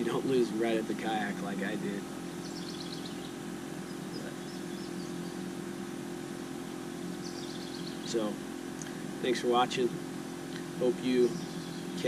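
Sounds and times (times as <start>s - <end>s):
low hum: 0.0s - 12.0s
bird chirping: 1.2s - 8.9s, 10.8s - 12.0s.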